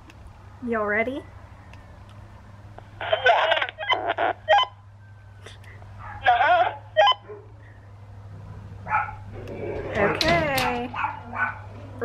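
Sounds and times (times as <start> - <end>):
voices through walkie-talkie: 3.0 - 4.7.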